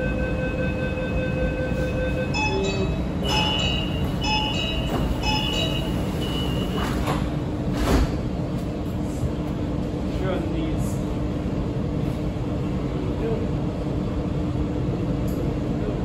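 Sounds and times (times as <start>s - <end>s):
electronic door warning beep: 0.0s - 7.0s
stopped train hum: 0.0s - 16.0s
sliding doors knocking shut: 4.8s - 8.2s.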